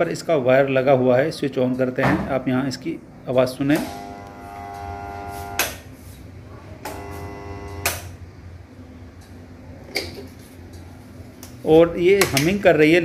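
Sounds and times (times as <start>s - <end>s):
water pump motor humming: 3.8s - 5.7s, 6.9s - 8.0s.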